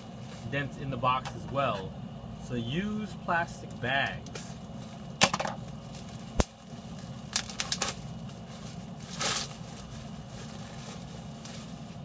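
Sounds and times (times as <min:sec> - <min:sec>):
bubble wrap and plastic bags rustling: 0:04.3 - 0:12.0.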